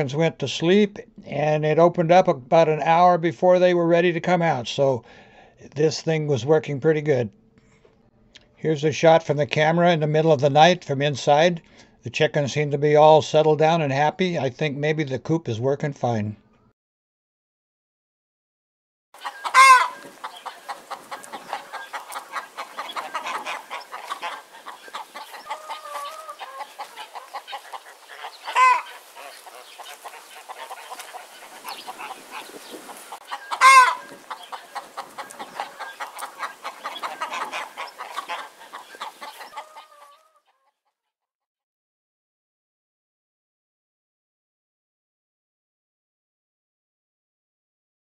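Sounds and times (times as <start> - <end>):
chickens clucking: 19.2 - 40.8
short loud chicken calls: 19.2 - 40.9.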